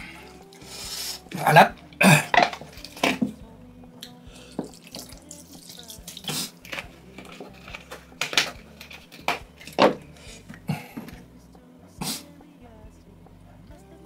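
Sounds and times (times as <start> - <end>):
slurping noodles: 6.0 - 6.8.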